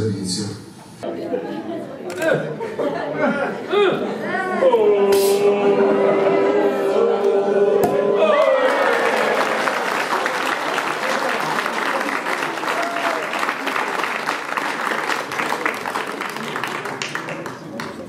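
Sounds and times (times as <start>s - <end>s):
voices holding ooh: 4.0s - 9.9s
crowd applauding: 6.0s - 18.0s.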